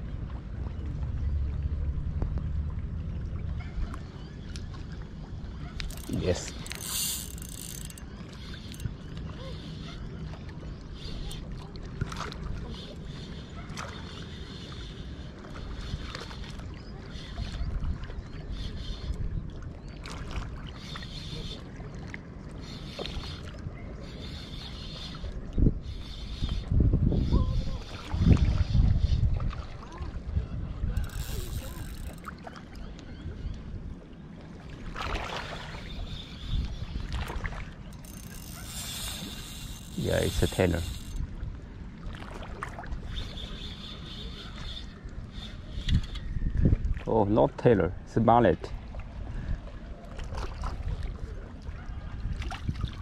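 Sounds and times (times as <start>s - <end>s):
water lapping: 0.1s - 26.2s, 27.6s - 46.0s, 46.6s - 53.0s
spinning reel whirring: 5.8s - 8.9s, 31.0s - 32.3s, 37.9s - 41.2s
wind on microphone: 25.2s - 32.2s, 45.2s - 47.1s
wind rumbling on microphone: 25.2s - 43.5s, 44.8s - 53.0s
water lapping against rocky shore: 34.0s - 36.1s, 36.8s - 43.2s.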